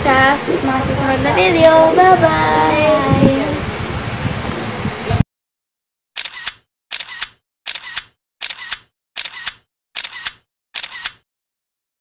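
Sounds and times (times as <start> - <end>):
camera shutter double clicks: 6.2 - 11.2.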